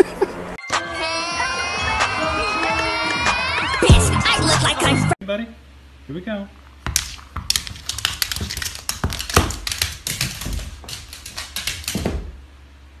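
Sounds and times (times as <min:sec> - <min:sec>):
rapid light tapping and clicking: 0:06.9 - 0:12.4.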